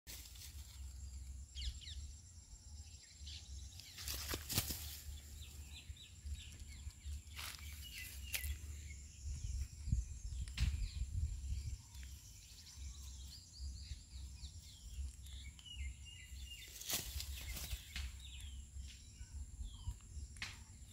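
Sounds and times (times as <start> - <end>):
rustles and flaps in dry grass: 0.1 - 1.4, 3.7 - 5.6, 6.4 - 8.7, 16.6 - 18.4
faint bird chirps: 0.4 - 20.9
low wind rumble: 5.0 - 20.9.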